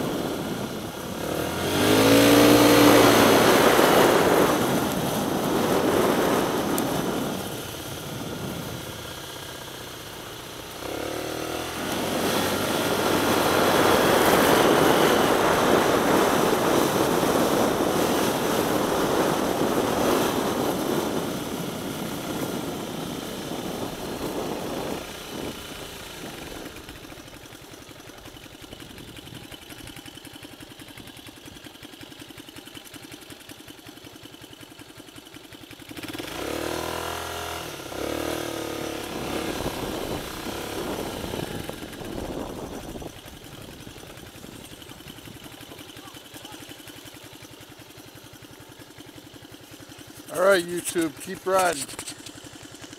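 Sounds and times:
wind rushing over microphone: 0:00.0 - 0:09.1, 0:11.6 - 0:26.9, 0:38.8 - 0:44.6
scooter engine running: 0:00.0 - 0:52.9.

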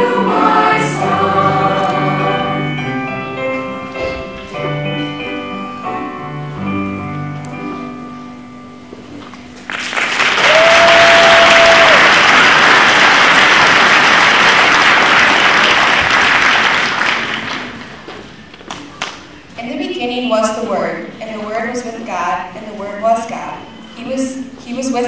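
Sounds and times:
choir and piano chord: 0:00.0 - 0:07.2
audience applause: 0:09.7 - 0:19.1.

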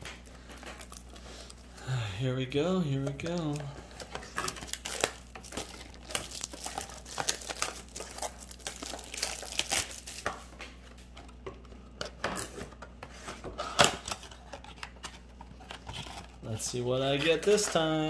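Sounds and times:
packaging crinkling and tearing: 0:00.1 - 0:01.7, 0:02.9 - 0:11.2, 0:13.7 - 0:18.0.

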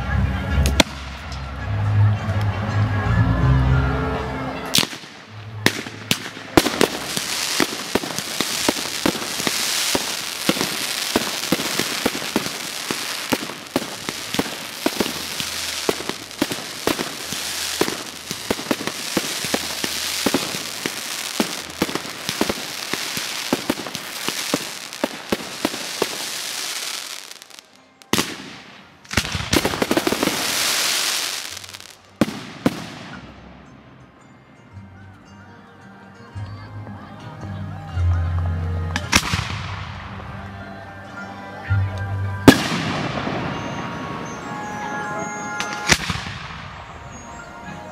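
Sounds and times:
fireworks crackling and banging: 0:00.5 - 0:01.7, 0:04.7 - 0:33.8, 0:39.0 - 0:40.5, 0:42.4 - 0:47.9.

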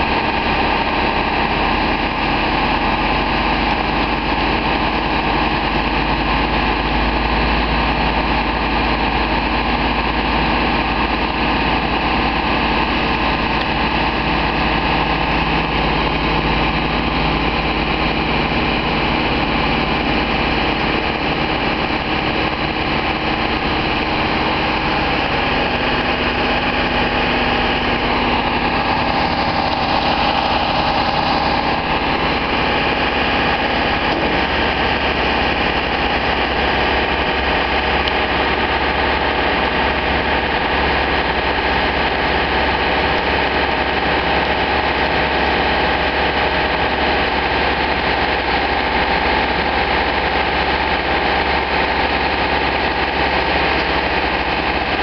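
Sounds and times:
boom lift engine running: 0:00.0 - 0:55.0.

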